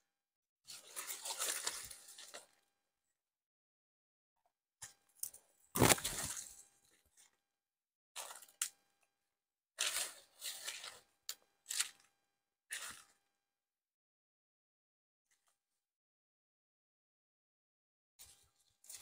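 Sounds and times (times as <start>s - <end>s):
brush scraping: 9.8s - 11.1s.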